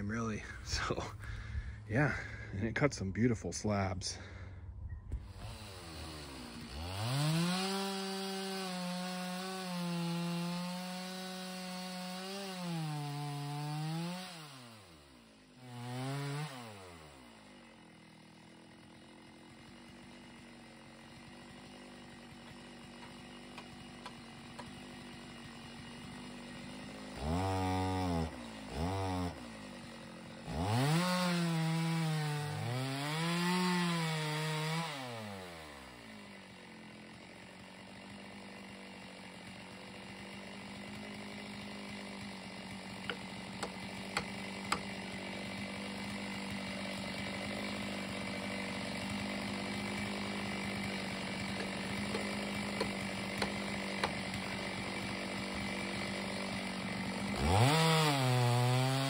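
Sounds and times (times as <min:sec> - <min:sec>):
chainsaw cutting log: 0:00.0 - 0:03.1, 0:03.7 - 0:04.5, 0:05.1 - 0:59.0.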